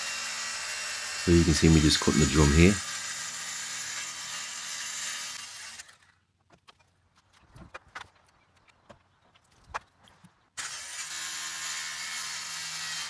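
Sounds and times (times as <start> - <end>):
circular saw cutting: 0.0 - 6.2, 10.6 - 13.0.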